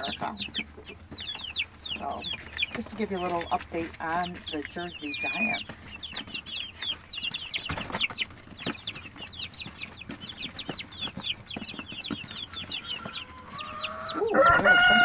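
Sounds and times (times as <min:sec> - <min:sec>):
chicks peeping: 0:00.0 - 0:15.0
rooster crowing: 0:12.7 - 0:15.0.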